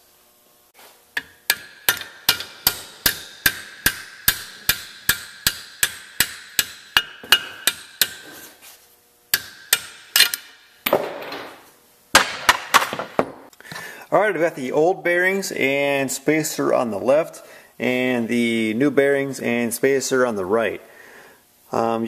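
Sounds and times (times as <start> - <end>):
hammer striking metal socket: 1.2 - 8.3, 9.4 - 11.0.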